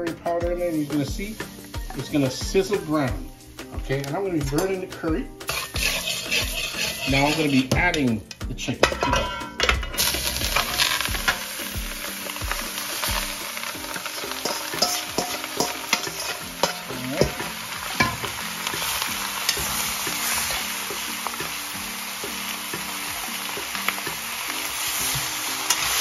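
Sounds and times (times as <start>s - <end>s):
chicken sizzling in hot oil: 0.6s - 8.2s, 8.8s - 26.0s
metal spoon scraping and knocking: 5.5s - 8.1s, 8.8s - 10.8s, 14.4s - 17.4s.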